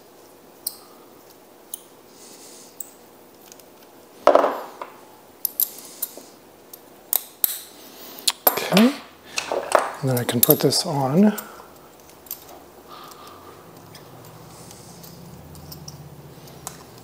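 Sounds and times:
metal collet parts clinking: 0:09.7 - 0:17.0.

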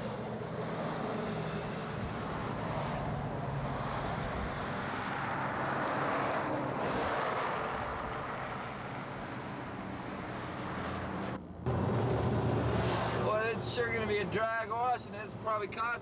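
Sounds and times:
rushing noise: 0:09.7 - 0:14.8
truck engine running: 0:11.1 - 0:14.4.

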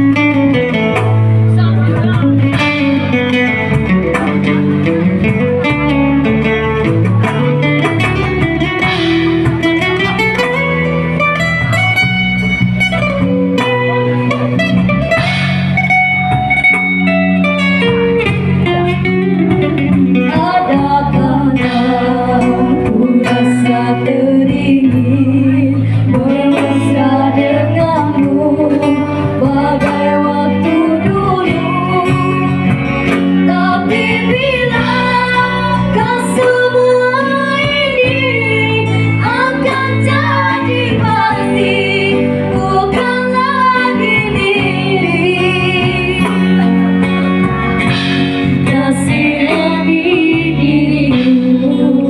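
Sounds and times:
acoustic guitar: 0:00.0 - 0:52.0
electric keyboard: 0:00.0 - 0:52.0
women singing: 0:20.1 - 0:46.8, 0:48.4 - 0:52.0.

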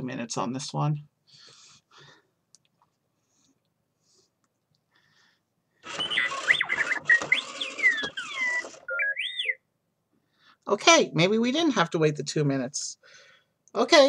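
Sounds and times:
toy robot beeping and whistling: 0:05.8 - 0:09.6.

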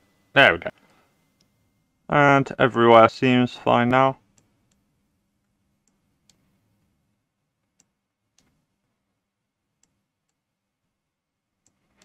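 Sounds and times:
computer mouse clicks: 0:05.8 - 0:06.5, 0:07.6 - 0:08.6, 0:09.8 - 0:10.4.

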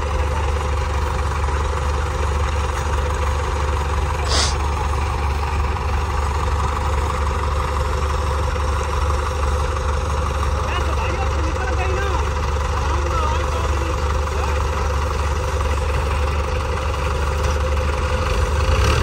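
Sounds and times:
diesel tractor engines idling: 0:00.0 - 0:19.0
brief hiss: 0:04.2 - 0:04.6.

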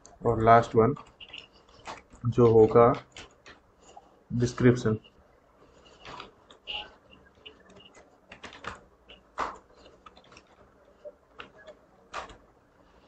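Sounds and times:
typing on computer keyboard: 0:03.0 - 0:03.6, 0:07.4 - 0:10.7, 0:11.4 - 0:12.4.

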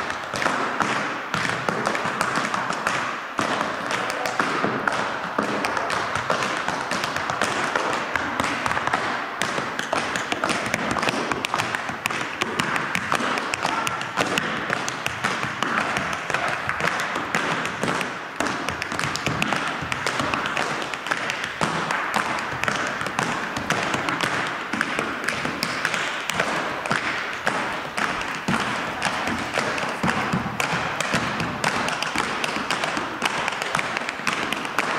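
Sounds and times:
tap shoes on wooden floor: 0:00.0 - 0:34.9.

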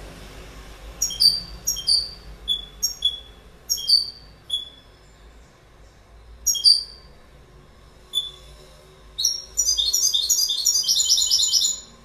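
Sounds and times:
goldfinch chirping: 0:01.0 - 0:05.0, 0:06.4 - 0:07.1, 0:09.2 - 0:11.9.

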